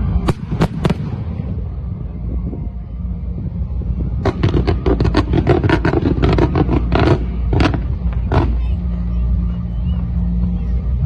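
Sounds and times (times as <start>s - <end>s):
steady low rumble: 0.0s - 11.0s
fireworks banging and cracking: 0.2s - 1.6s, 4.2s - 9.5s.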